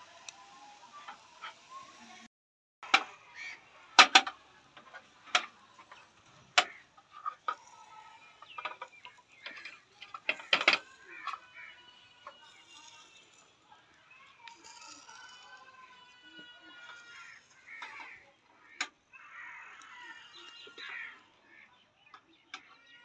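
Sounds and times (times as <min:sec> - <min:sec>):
metal skewers clinking on grill: 0:07.0 - 0:18.1.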